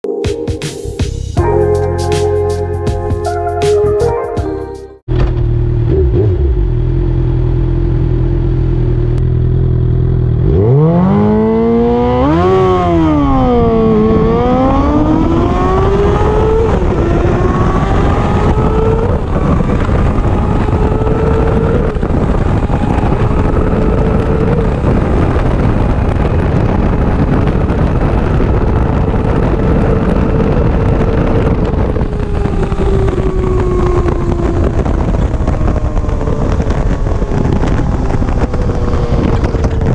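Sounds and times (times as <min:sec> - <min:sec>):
motorcycle engine revving: 0:05.1 - 0:39.9
wind noise: 0:10.3 - 0:39.9.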